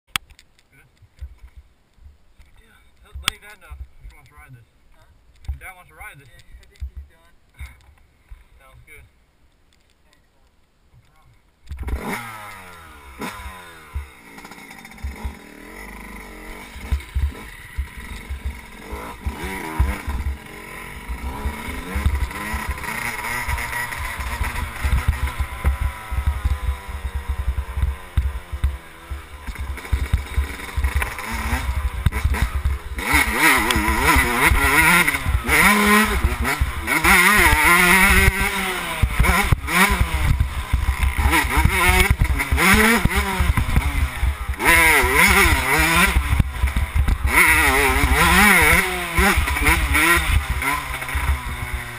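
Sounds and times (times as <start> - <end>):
dirt bike engine revving: 11.7 - 51.9.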